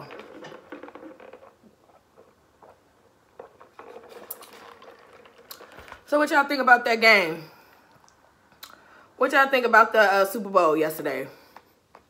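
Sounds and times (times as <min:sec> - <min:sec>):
sipping through a straw: 0:03.4 - 0:06.0
mouth clicks and lip smacks: 0:07.9 - 0:08.8.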